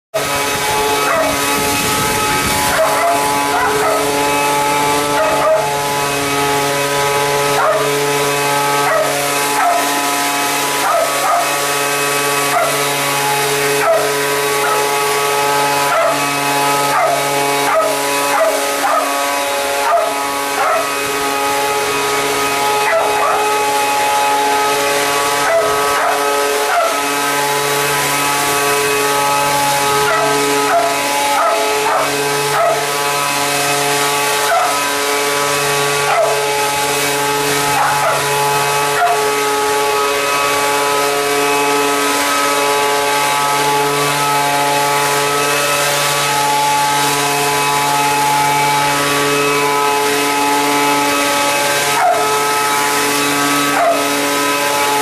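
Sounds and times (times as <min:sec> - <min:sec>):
leaf blower running: 0:00.0 - 0:55.0
dog barking and yipping: 0:00.2 - 0:01.6, 0:02.6 - 0:05.9, 0:07.5 - 0:08.0, 0:08.7 - 0:10.0, 0:10.7 - 0:11.7, 0:12.4 - 0:12.9, 0:13.8 - 0:15.0, 0:15.7 - 0:21.0, 0:22.8 - 0:23.6, 0:25.3 - 0:27.1, 0:30.0 - 0:33.0, 0:34.3 - 0:34.9, 0:36.0 - 0:36.5, 0:37.7 - 0:38.3, 0:38.9 - 0:39.3, 0:51.8 - 0:52.3, 0:53.7 - 0:54.2.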